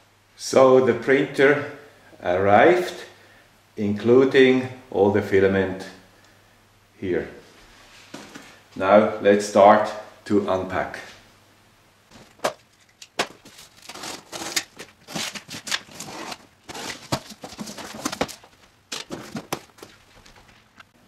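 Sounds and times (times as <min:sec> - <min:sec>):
cardboard flaps scraping: 0:12.1 - 0:20.8
packing tape pulled off: 0:12.8 - 0:19.4.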